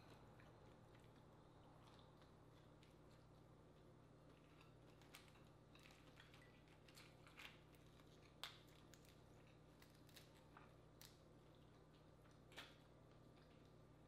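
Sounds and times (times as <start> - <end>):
shells cracking and snapping: 5.0 - 11.2.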